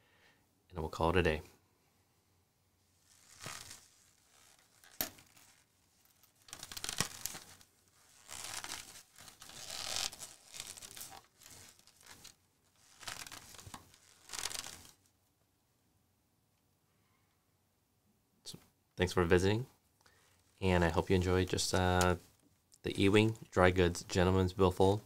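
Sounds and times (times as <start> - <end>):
leather wallet creaking and rustling: 3.0 - 15.1.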